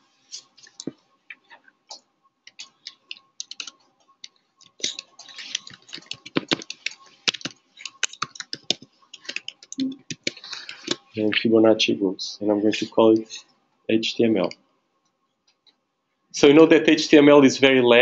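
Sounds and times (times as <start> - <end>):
computer keyboard typing: 2.5 - 11.1.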